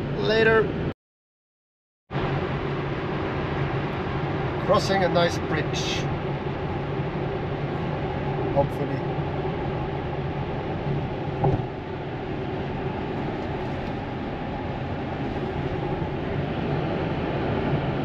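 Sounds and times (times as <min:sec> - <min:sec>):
tyre and road noise in car: 0:06.1 - 0:18.0
brief thump: 0:11.4 - 0:11.7.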